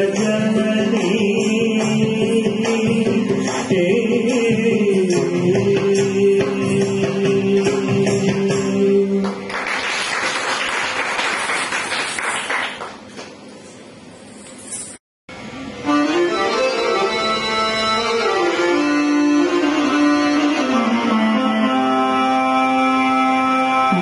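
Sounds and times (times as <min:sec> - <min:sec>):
song with held sung note: 0:00.0 - 0:09.5
applause: 0:09.2 - 0:13.4.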